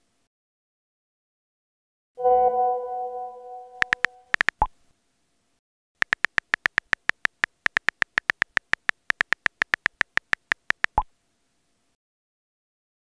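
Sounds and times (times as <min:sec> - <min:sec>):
message sent pop: 0:02.2 - 0:04.6
touchscreen keyboard clicks: 0:03.8 - 0:04.7, 0:06.0 - 0:11.1.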